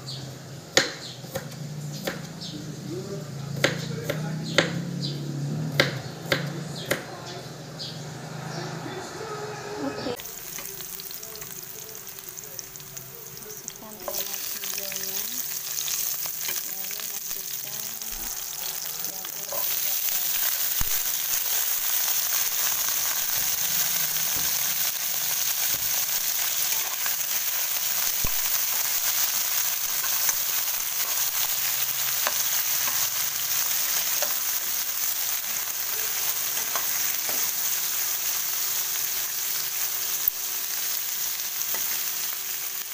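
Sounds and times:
vegetables sizzling in oil: 0:10.0 - 0:42.9.

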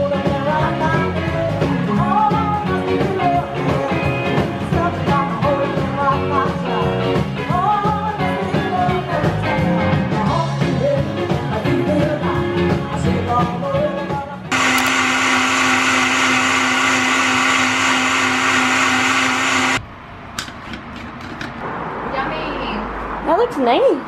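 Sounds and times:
live band music with singing: 0:00.0 - 0:14.5
blender bottle clicks: 0:14.5 - 0:15.0
blender running: 0:14.5 - 0:19.8.

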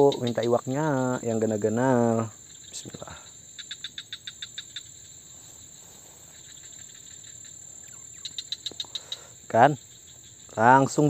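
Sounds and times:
insect chirps: 0:00.0 - 0:11.0
insects droning: 0:00.0 - 0:11.0.

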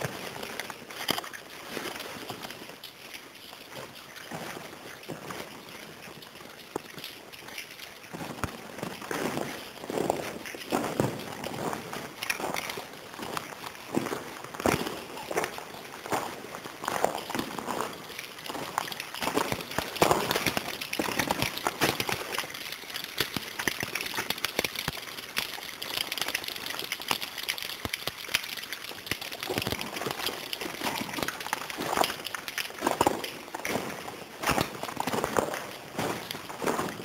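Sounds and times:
footsteps on stony floor: 0:00.0 - 0:27.0, 0:27.9 - 0:37.0
crackling clicks: 0:00.0 - 0:37.0.

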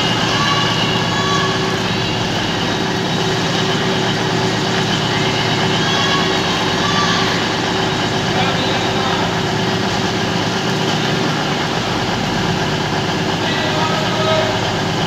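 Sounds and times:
train engine humming: 0:00.0 - 0:15.0.

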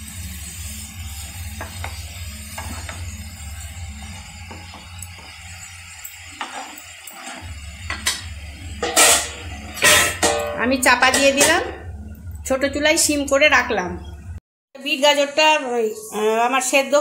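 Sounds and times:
quiet background music: 0:00.2 - 0:17.0
spatula scraping a frying pan: 0:00.3 - 0:10.5.

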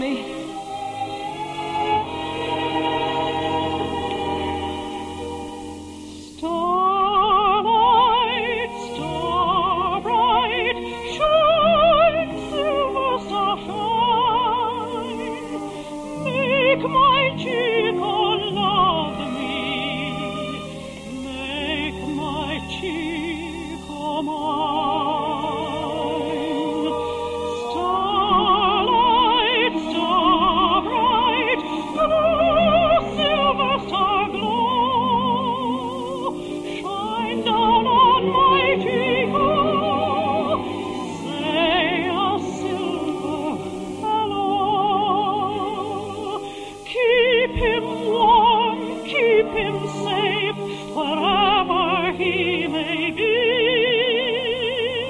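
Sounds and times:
operatic singing with vibrato: 0:00.0 - 0:55.0
orchestra playing: 0:00.0 - 0:55.0.

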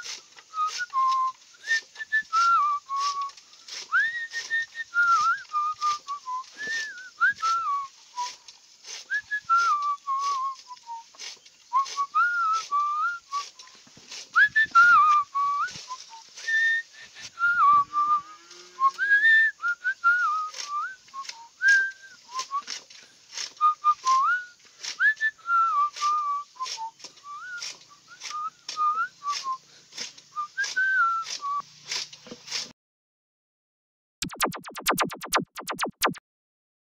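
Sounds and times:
cutter chopping leafy greens: 0:00.0 - 0:07.6, 0:08.2 - 0:17.4, 0:20.1 - 0:25.2, 0:25.9 - 0:32.7
person whistling a tune: 0:00.0 - 0:08.4, 0:09.1 - 0:22.8, 0:23.6 - 0:31.6, 0:34.2 - 0:36.2.

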